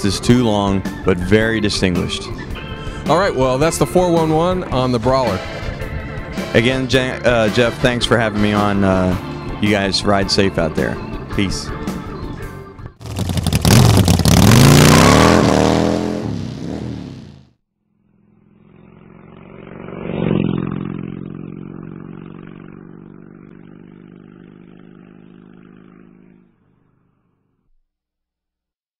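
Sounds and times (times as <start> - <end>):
motorcycle engine revving: 13.0 - 27.6
sustained tone with whoosh: 18.1 - 26.8.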